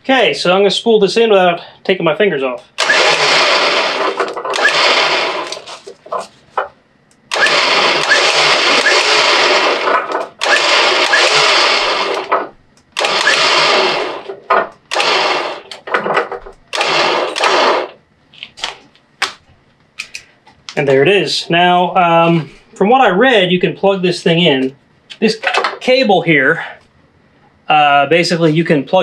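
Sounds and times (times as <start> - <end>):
electric winch motor running: 2.8 - 6.0, 7.3 - 15.8, 16.7 - 17.9.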